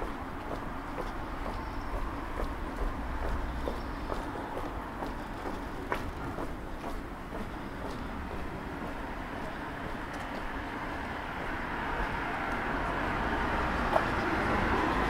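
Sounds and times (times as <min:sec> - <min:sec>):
street ambience: 0:00.0 - 0:15.0
car tyres on wet road: 0:07.5 - 0:15.0.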